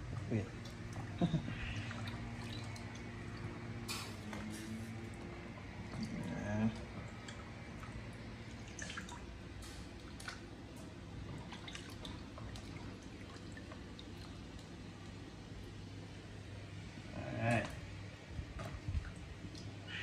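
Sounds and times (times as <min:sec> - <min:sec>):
drips and plops into water: 0:00.0 - 0:04.4, 0:05.6 - 0:15.5, 0:18.5 - 0:19.9
broth bubbling in a pot: 0:00.0 - 0:20.0.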